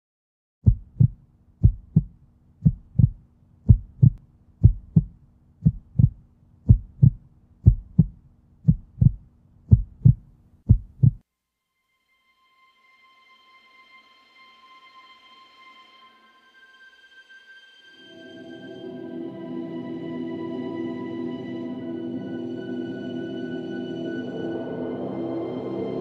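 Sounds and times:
heartbeat thumps: 0:00.6 - 0:11.2.

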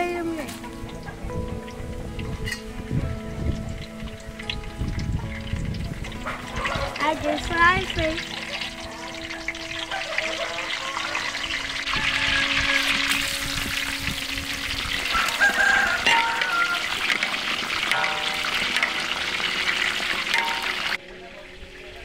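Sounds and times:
fish deep-frying in hot oil: 0:00.0 - 0:22.0.

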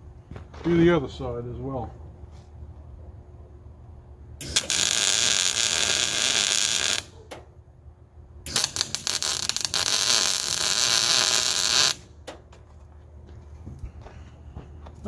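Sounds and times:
welding arc crackling hiss: 0:04.4 - 0:07.2, 0:08.5 - 0:12.1.

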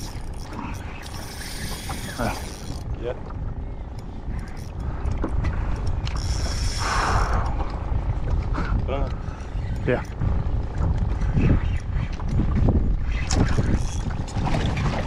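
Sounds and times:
fishing reel drag buzzing: 0:00.0 - 0:02.8, 0:06.2 - 0:07.0
low wind rumble: 0:00.0 - 0:15.0.

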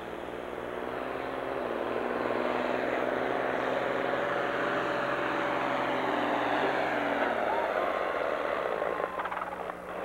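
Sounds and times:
diesel tractor at full throttle: 0:00.0 - 0:10.0.

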